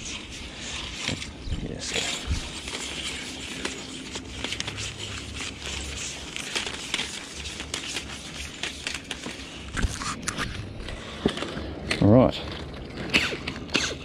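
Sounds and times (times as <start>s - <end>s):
cable scraping through gloved hands: 0.0s - 14.0s.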